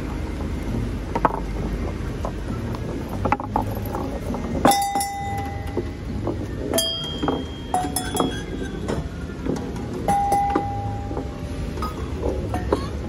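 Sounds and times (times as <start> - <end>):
ball rolling on wood: 0.0 - 13.0
cowbells ringing: 4.6 - 6.0, 6.7 - 9.3, 10.0 - 13.0.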